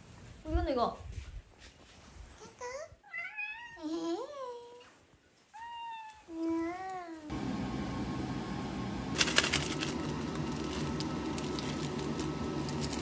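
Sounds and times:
steady low hum: 7.3 - 13.0
flakes crackling into water: 9.2 - 13.0.

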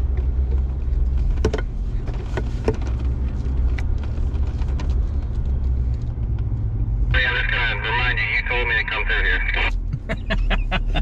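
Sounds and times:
diesel engine droning: 0.0 - 11.0.

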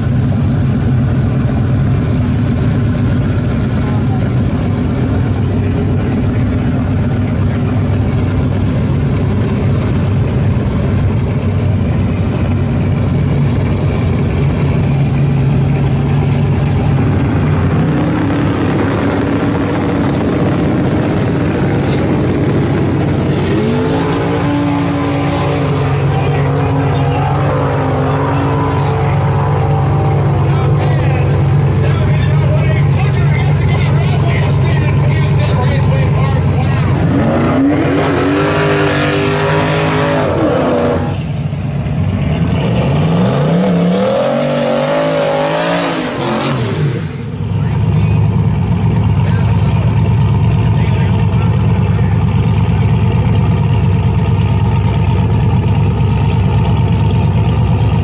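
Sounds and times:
race car engine idling: 0.0 - 58.0
person speaking: 24.0 - 37.3.

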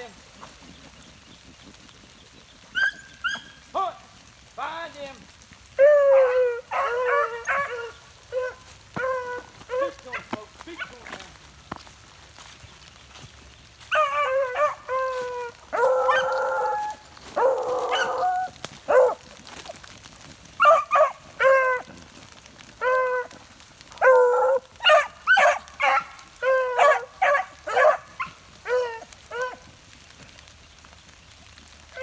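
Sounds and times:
dogs baying: 5.8 - 11.0, 13.8 - 19.8, 20.6 - 22.1, 22.7 - 29.7
beagles barking: 5.8 - 11.1, 13.8 - 19.3, 20.6 - 21.9, 23.9 - 29.6.

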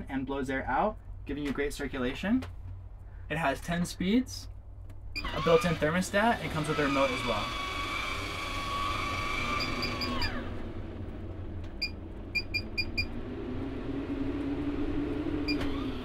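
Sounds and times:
fan low hum: 0.0 - 16.0
fan motor whine: 3.8 - 16.0.

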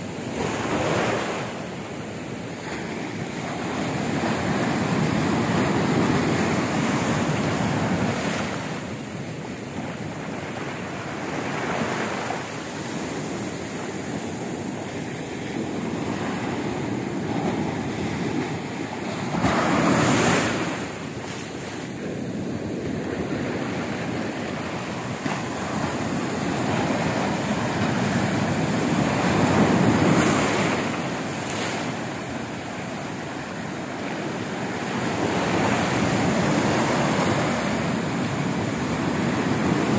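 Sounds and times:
surf breaking on shore: 10.7 - 39.9.

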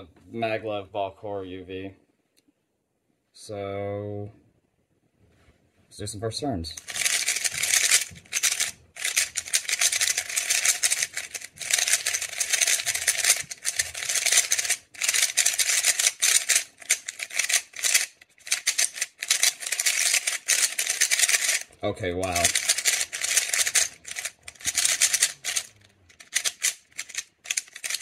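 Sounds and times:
speed cube clacking: 6.8 - 28.0.

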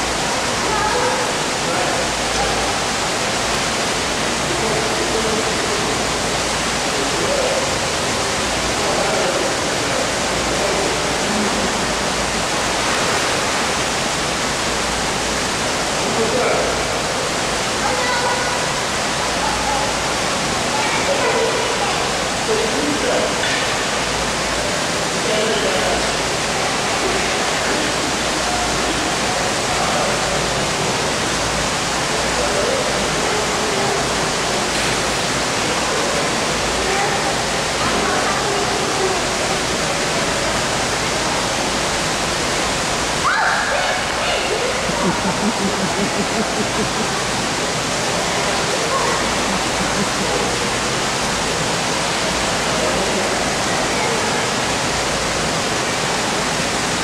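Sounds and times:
faint voices: 0.0 - 57.0
rushing water hiss: 0.0 - 57.0.

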